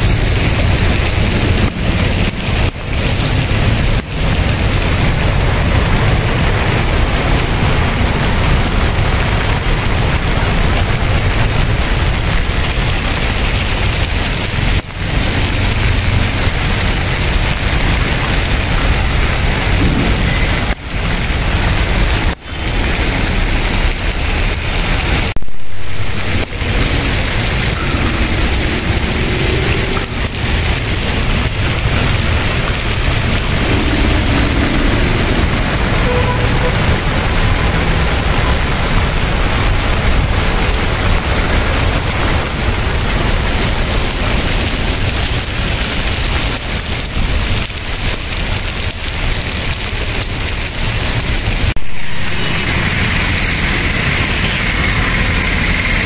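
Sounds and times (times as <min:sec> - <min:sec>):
rain: 0:00.0 - 0:56.0
river rushing in flood: 0:00.0 - 0:56.0
low rumble on microphone: 0:15.8 - 0:22.4.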